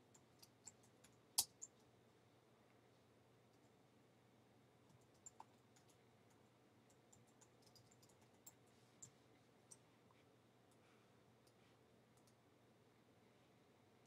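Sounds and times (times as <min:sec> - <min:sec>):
computer keyboard typing: 0:00.0 - 0:01.8, 0:04.9 - 0:09.2.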